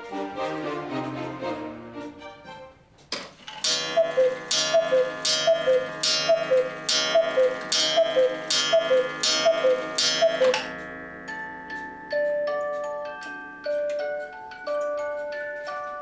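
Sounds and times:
cuckoo clock calling: 0:03.6 - 0:16.0.

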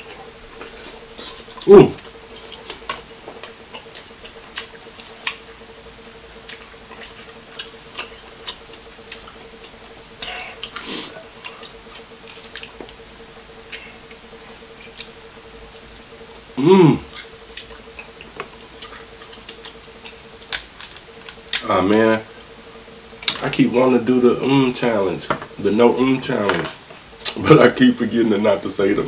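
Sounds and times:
wet chewing and smacking: 0:00.6 - 0:05.6, 0:06.4 - 0:13.0.

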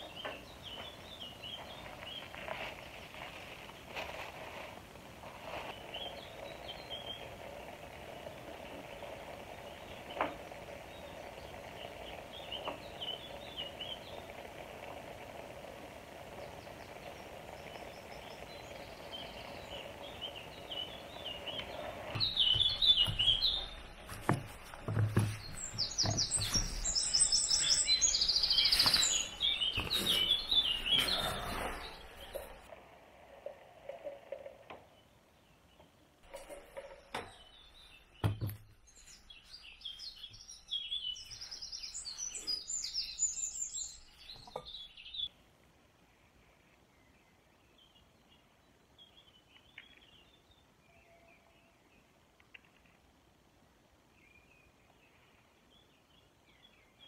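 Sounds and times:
songbirds chirping and singing: 0:00.0 - 0:04.2, 0:05.4 - 0:32.7, 0:33.4 - 0:45.3
steady background hiss: 0:00.0 - 0:57.0.

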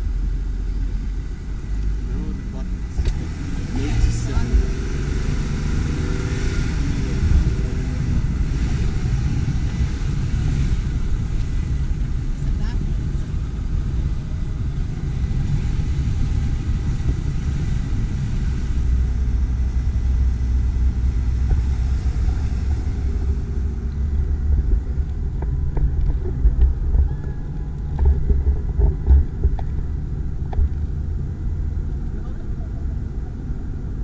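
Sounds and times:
vehicle engine low rumble: 0:00.0 - 0:34.0
knocks and clunks: 0:24.4 - 0:30.9.

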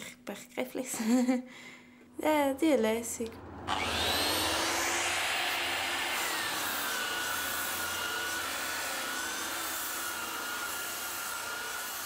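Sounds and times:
electric sander whining: 0:03.3 - 0:12.0.

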